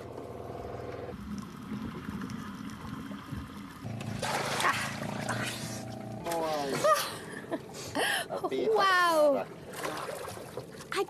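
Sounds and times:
low steady hum: 0:00.0 - 0:10.9
water splashing: 0:01.1 - 0:07.6, 0:08.8 - 0:11.0.

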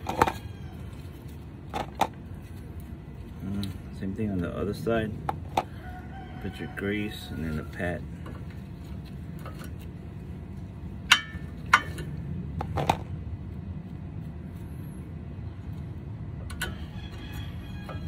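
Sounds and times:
low background rumble: 0:00.0 - 0:18.0
metal brake pads clinking: 0:11.0 - 0:13.1.

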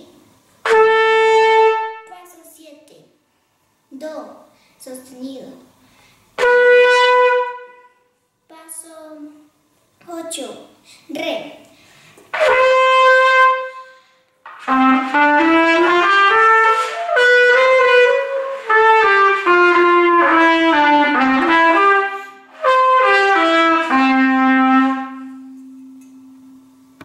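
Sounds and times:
trumpet playing a scale: 0:00.6 - 0:02.1, 0:06.4 - 0:08.1, 0:12.3 - 0:26.0.

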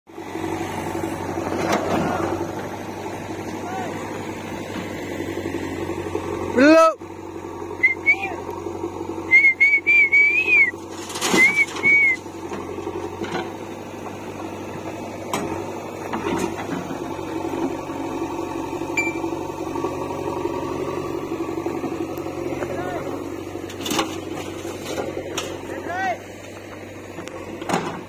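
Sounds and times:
diesel engines idling: 0:00.1 - 0:28.0
person whistling high notes: 0:09.3 - 0:10.8, 0:11.4 - 0:12.2.

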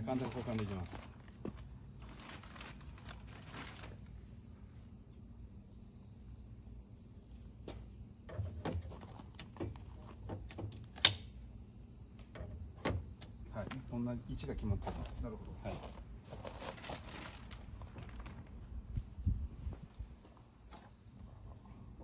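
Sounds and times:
sharp click: 0:11.0 - 0:11.4.

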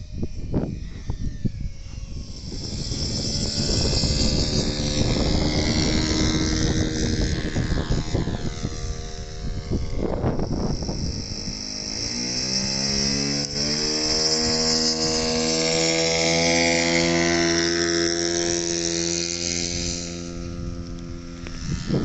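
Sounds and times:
model airplane engine whine: 0:00.0 - 0:22.0
plane engine running steadily: 0:00.0 - 0:22.0.

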